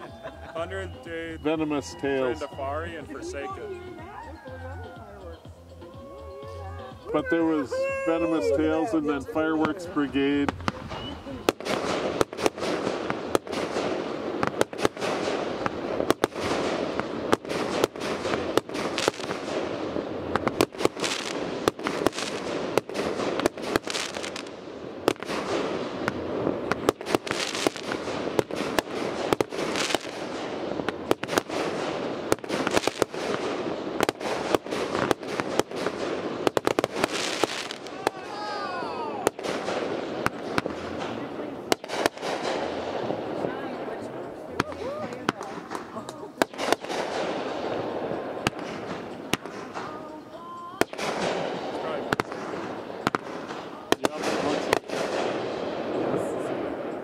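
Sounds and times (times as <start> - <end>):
firework crackling: 0.0 - 57.0
firework launches and bursts: 7.9 - 50.0, 50.8 - 57.0.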